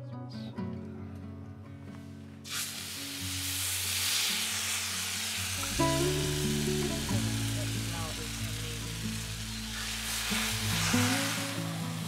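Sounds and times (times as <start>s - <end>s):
chicken sizzling on hot metal: 2.5s - 12.0s.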